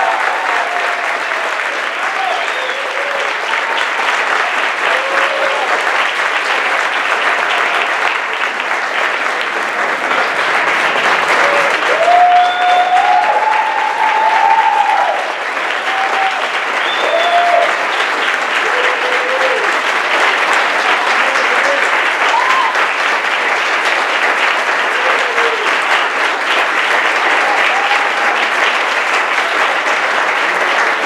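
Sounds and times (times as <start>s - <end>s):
voices cheering: 0.0s - 6.2s, 11.2s - 23.0s, 24.7s - 26.0s, 27.1s - 29.7s
audience applauding: 0.0s - 31.0s.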